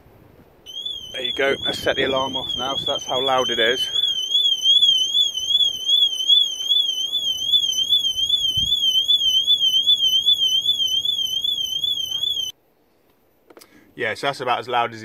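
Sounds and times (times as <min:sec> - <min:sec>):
warbling car alarm siren: 0:00.7 - 0:12.5.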